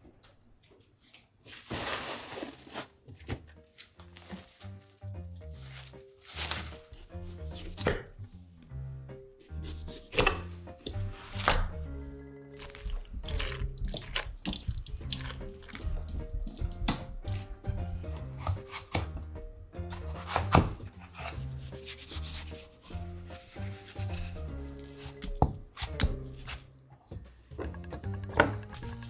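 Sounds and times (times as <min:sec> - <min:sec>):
background music: 0:02.2 - 0:29.0
knife cutting melon on board: 0:05.6 - 0:08.2, 0:09.4 - 0:11.9, 0:12.6 - 0:19.3, 0:19.9 - 0:29.0
spoon scraping seeds: 0:21.1 - 0:25.2.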